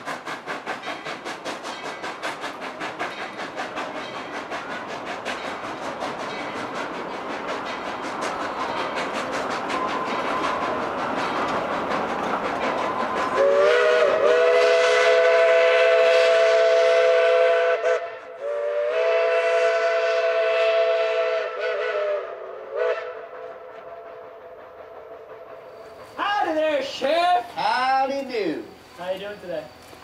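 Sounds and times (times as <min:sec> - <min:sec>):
train running rumble: 0:00.0 - 0:17.7, 0:18.5 - 0:30.0
steam locomotive chime whistle: 0:12.6 - 0:27.0.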